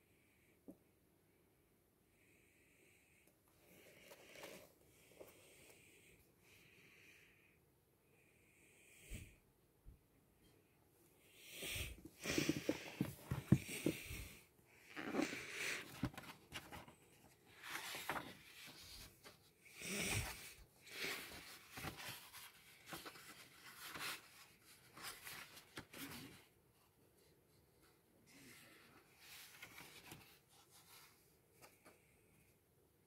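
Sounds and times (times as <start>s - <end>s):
paper pages rustling: 15.2s - 19.5s, 20.1s - 26.4s, 29.2s - 31.9s.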